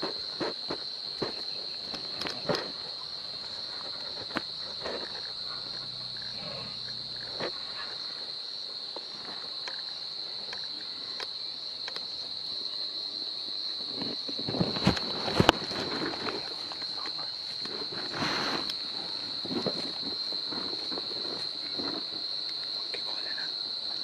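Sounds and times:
snaps and rustles: 0.0 - 2.8, 14.0 - 22.7
insects droning: 0.0 - 24.0
elephant low rumble: 4.6 - 8.0.

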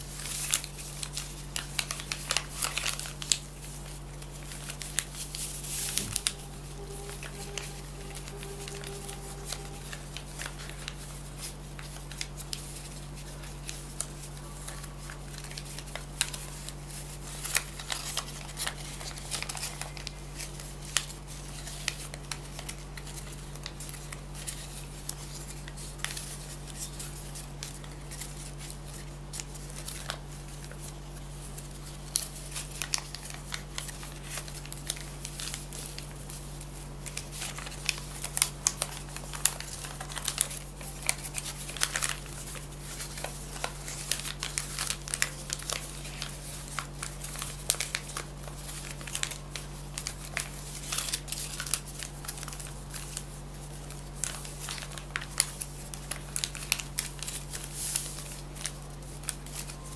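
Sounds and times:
low electrical hum: 0.0 - 59.9
paper clicking and rustling: 0.0 - 59.9.

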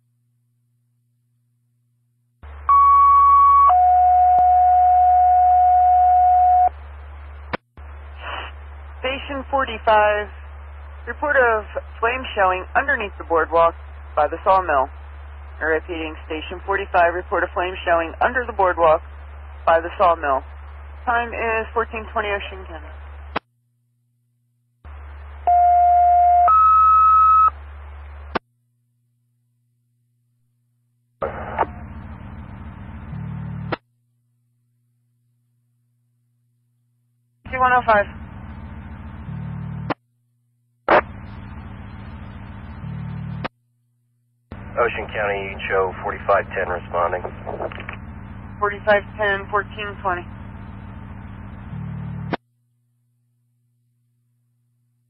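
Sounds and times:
low radio hum: 2.4 - 23.5, 24.9 - 28.4, 31.2 - 33.8, 37.4 - 40.0, 40.9 - 43.5, 44.5 - 52.4
two-tone paging tones over radio: 2.7 - 6.7.

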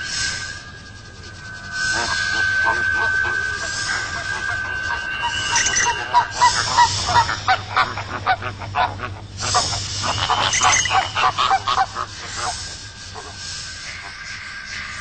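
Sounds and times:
low steady hum: 0.0 - 15.0
flamingos honking: 1.9 - 13.4.

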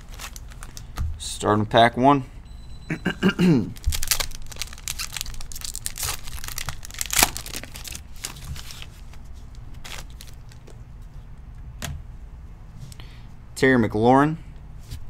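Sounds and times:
foil wrapper tearing and crinkling: 0.0 - 0.9, 3.8 - 8.9, 9.6 - 10.6
cards rustling as handled: 0.0 - 1.0, 3.8 - 11.1.

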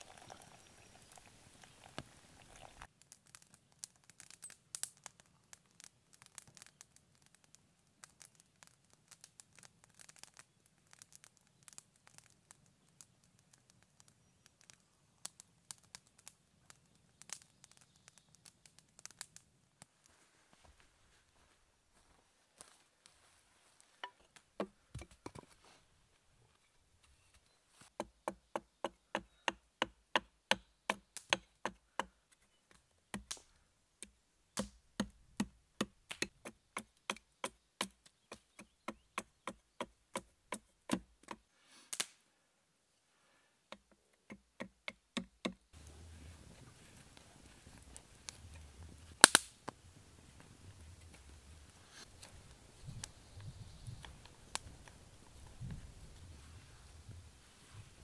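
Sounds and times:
faint outdoor background: 0.0 - 58.0
hatchet chopping wooden stick: 28.0 - 32.1, 33.1 - 33.4, 34.6 - 41.4, 43.7 - 45.6.

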